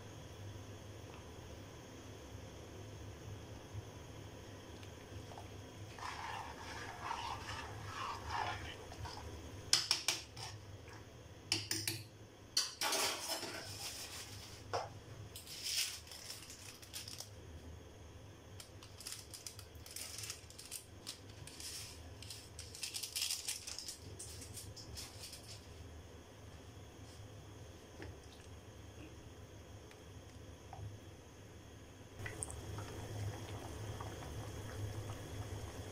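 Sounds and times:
soft crackling of simmering food: 0.4 - 11.6, 13.3 - 35.9
spoon scraping and clinking pot: 5.9 - 10.6.

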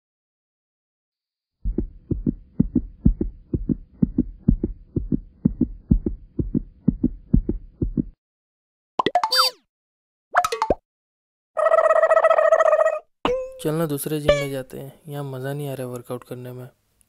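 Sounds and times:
heartbeat thumps: 1.6 - 8.2.

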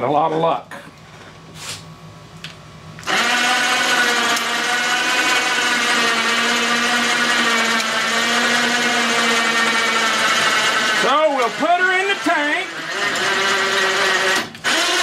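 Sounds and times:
electric hoist motor humming: 3.0 - 15.0.

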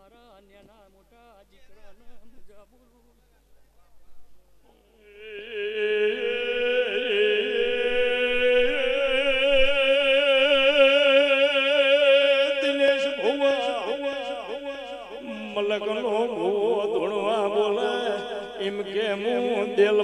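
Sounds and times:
person singing a long vibrato note: 5.0 - 18.5.

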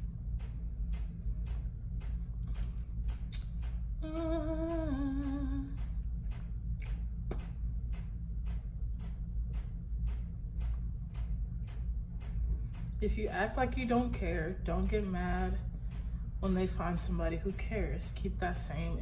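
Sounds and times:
steady low hum: 0.0 - 19.0
woman humming: 4.0 - 5.8.

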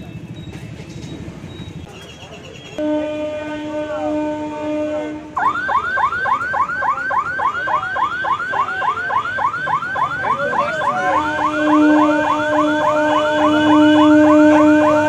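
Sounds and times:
train horn: 2.8 - 5.4, 10.8 - 15.0
electronic warning siren whooping: 5.4 - 15.0.

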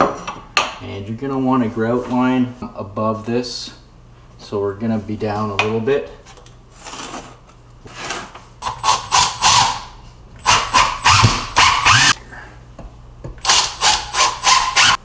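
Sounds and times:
cordless drill driving screws: 8.6 - 12.2, 13.4 - 15.0.

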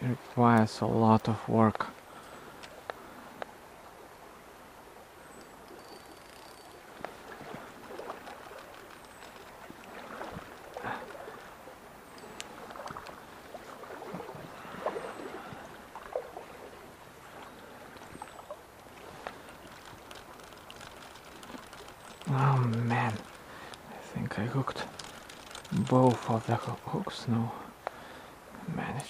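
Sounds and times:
water splashing in a stream: 0.0 - 27.8
sharp clicks: 7.9 - 10.8, 19.2 - 23.9, 24.8 - 26.8.

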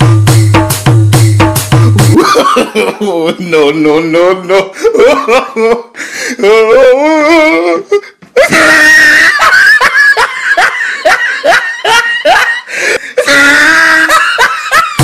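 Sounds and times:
woman laughing hard: 2.1 - 3.6, 4.5 - 6.6, 8.4 - 15.0.

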